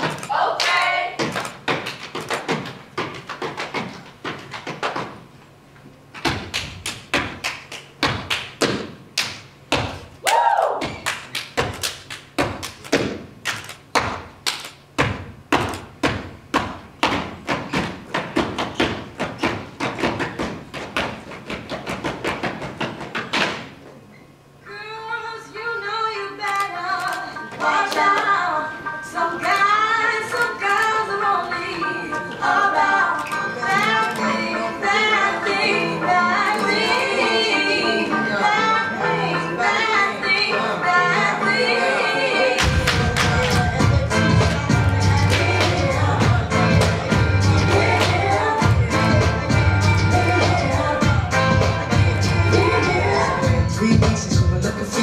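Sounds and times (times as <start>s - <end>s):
foot stomps and hand claps: 0.0s - 5.2s, 6.2s - 23.8s, 42.6s - 43.9s
music with singing: 24.6s - 55.0s.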